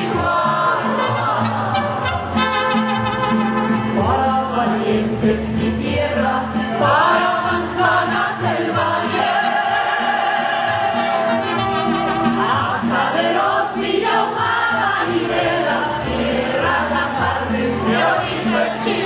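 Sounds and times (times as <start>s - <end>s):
steady bass line: 0.0s - 19.0s
strummed guitars: 0.0s - 19.0s
woman singing: 4.0s - 11.4s, 12.1s - 19.0s.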